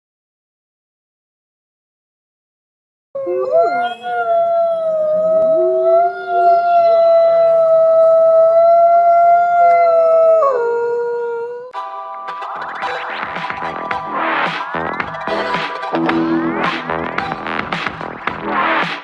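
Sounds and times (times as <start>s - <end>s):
lower wavering wolf howl: 3.2s - 11.7s
wolf howling: 3.2s - 11.7s.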